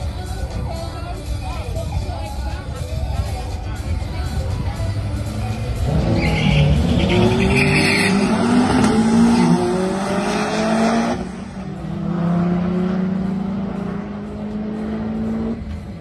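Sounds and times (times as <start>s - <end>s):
car engines revving: 4.4s - 16.0s.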